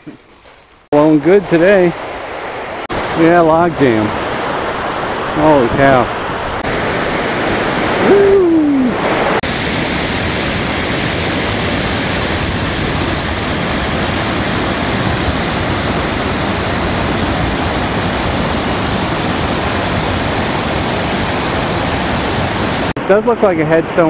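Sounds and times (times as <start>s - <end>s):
water rushing over dam: 2.9s - 24.0s.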